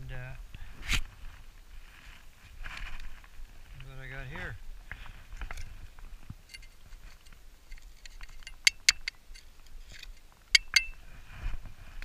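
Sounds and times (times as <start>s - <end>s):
rustling of dirt and gloves: 0.6s - 8.6s, 9.2s - 12.0s
metal probe clinking on metal: 6.5s - 6.8s, 7.7s - 11.0s.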